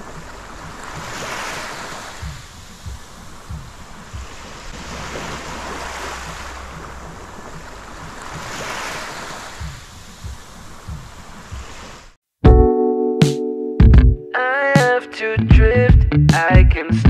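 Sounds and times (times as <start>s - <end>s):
waves washing on shore: 0.0s - 12.2s
wind thumps on microphone: 0.0s - 12.2s.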